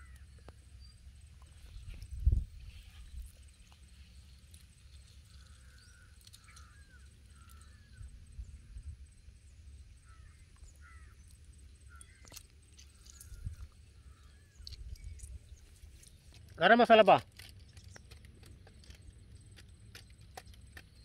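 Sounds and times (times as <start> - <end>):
faint short bird calls: 10.0 - 15.4.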